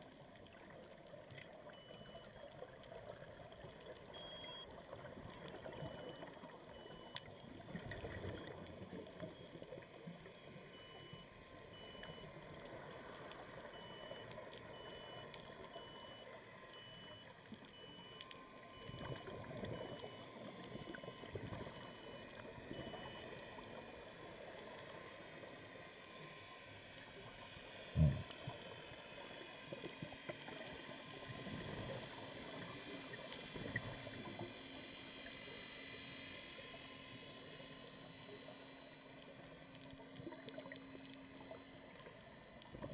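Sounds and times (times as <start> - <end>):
underwater regulator bubbles: 28.0 - 28.4.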